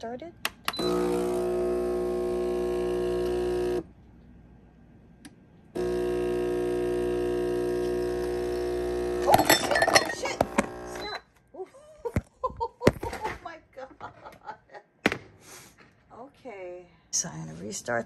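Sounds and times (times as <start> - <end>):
espresso machine pump buzzing: 0.7 - 3.9, 5.8 - 11.2.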